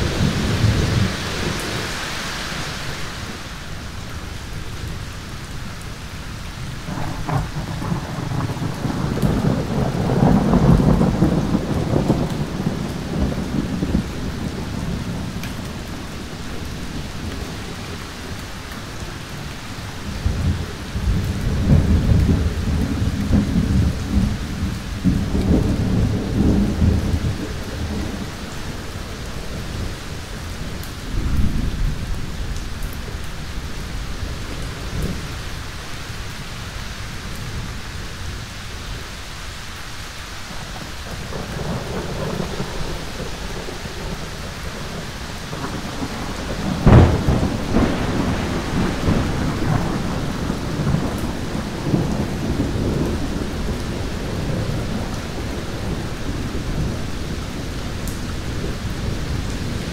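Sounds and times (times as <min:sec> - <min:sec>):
steady rain: 0:00.0 - 0:59.9
rolling thunder: 0:06.7 - 0:18.0, 0:20.0 - 0:35.6, 0:40.6 - 0:59.9
sharp thunderclap: 0:06.9 - 0:15.4, 0:41.3 - 0:57.0.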